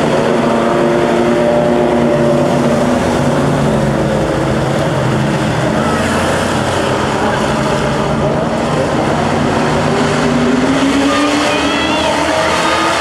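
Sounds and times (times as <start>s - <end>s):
race car engines running: 0.0s - 13.0s.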